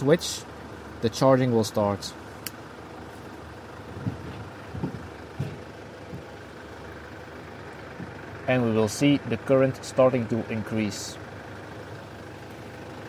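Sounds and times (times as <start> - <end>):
van engine idling: 0.0 - 13.0
light click: 2.4 - 2.6
soft knocks: 4.0 - 6.3.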